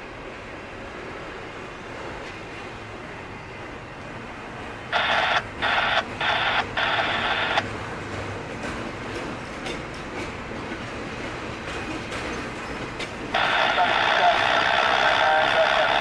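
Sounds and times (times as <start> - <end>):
freight train wheels on rails: 0.0 - 16.0
tinny radio scanner hiss: 4.9 - 7.6, 13.3 - 16.0.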